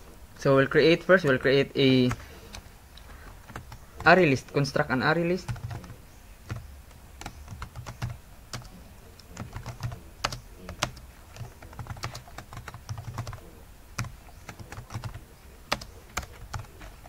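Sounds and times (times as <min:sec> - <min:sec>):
keyboard typing clicks: 0:03.4 - 0:03.8, 0:05.5 - 0:05.9, 0:06.5 - 0:13.4.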